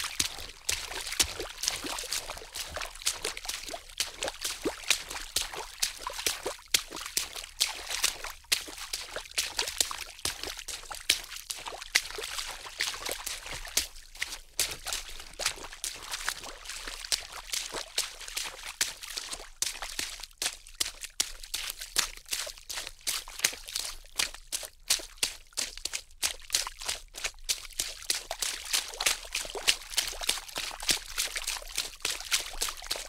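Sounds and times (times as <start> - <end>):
water splashing: 0.0 - 7.7.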